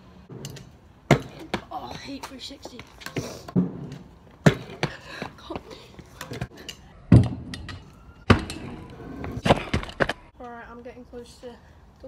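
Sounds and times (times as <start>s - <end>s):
scooter landing on asphalt: 0.3s - 5.7s, 7.1s - 10.3s.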